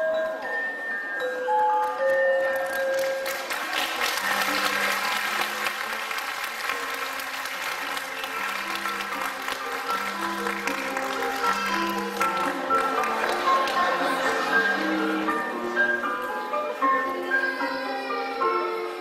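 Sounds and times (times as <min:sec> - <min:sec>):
audience applauding: 0:02.6 - 0:14.9.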